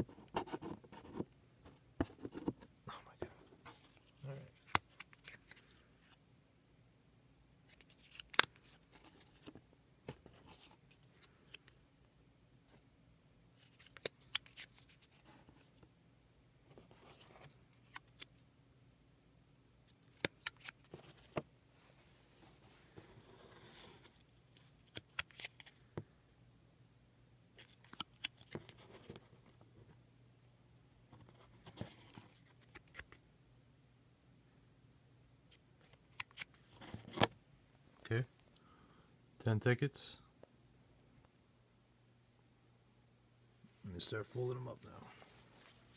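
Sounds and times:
paper rustling: 0:45.0 - 0:45.9.

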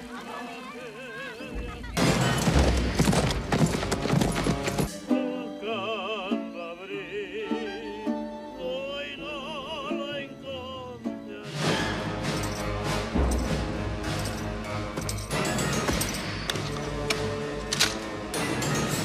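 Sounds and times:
horses galloping on dirt: 0:00.0 - 0:04.9.

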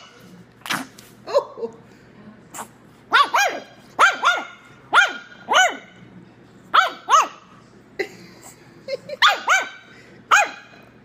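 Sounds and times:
puppy yapping: 0:03.1 - 0:05.9, 0:06.8 - 0:07.4.

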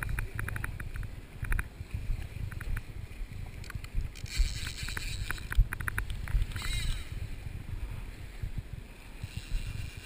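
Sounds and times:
fly reel ratchet clicks: 0:00.0 - 0:01.7, 0:03.6 - 0:07.2, 0:09.2 - 0:10.0
wind buffeting microphone: 0:00.0 - 0:10.0.

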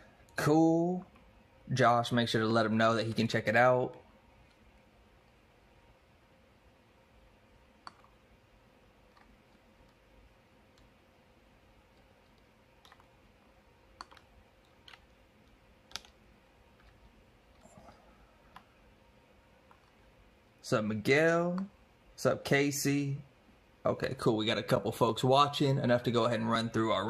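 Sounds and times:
computer mouse and keyboard clicks: 0:07.8 - 0:08.2, 0:09.0 - 0:10.0, 0:11.9 - 0:13.2, 0:13.9 - 0:17.8, 0:19.7 - 0:20.0.

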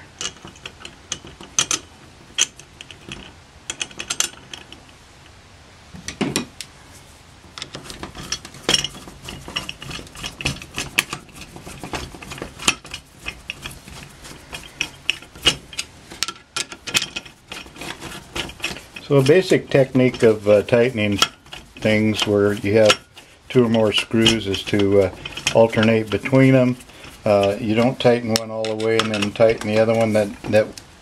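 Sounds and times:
screwdriver clicking on metal: 0:07.6 - 0:30.8.

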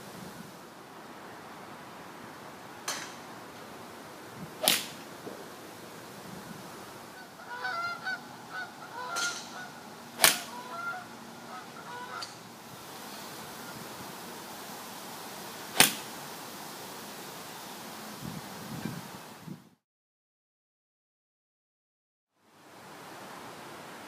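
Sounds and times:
golf club striking balls: 0:02.8 - 0:03.7, 0:04.4 - 0:05.6, 0:09.0 - 0:10.8, 0:12.2 - 0:12.5, 0:15.7 - 0:16.2
birds calling: 0:02.8 - 0:14.7.

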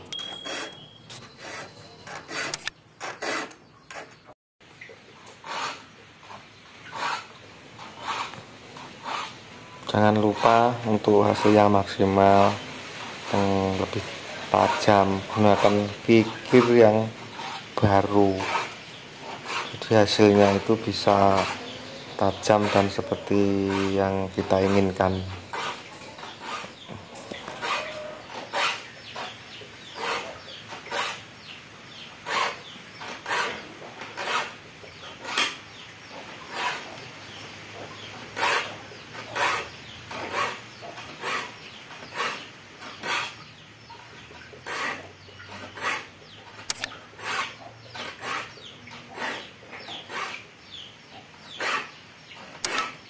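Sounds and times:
hand file rasping on saw teeth: 0:00.4 - 0:04.2, 0:05.4 - 0:09.4, 0:10.0 - 0:11.8, 0:14.5 - 0:31.2, 0:32.2 - 0:35.6, 0:36.5 - 0:37.0, 0:38.4 - 0:43.4, 0:44.6 - 0:46.1, 0:47.2 - 0:50.4, 0:51.5 - 0:52.0.

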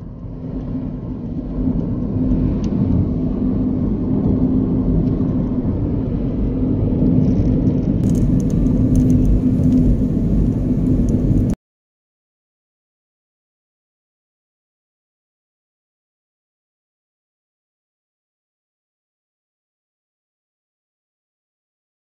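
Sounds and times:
engine and tyre rumble: 0:00.0 - 0:11.6
steady hum: 0:08.0 - 0:11.6.

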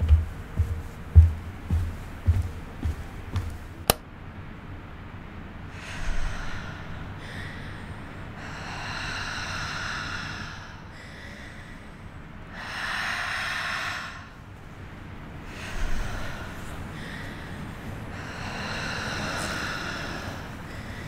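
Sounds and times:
low steady hum: 0:00.0 - 0:21.0
person breathing heavily: 0:05.7 - 0:21.0.

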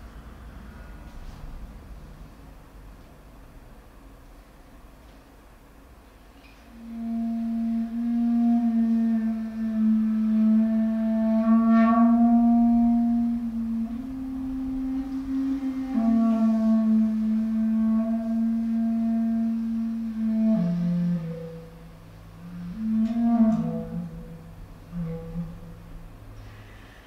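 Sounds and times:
clarinet playing a low note: 0:06.6 - 0:26.9.

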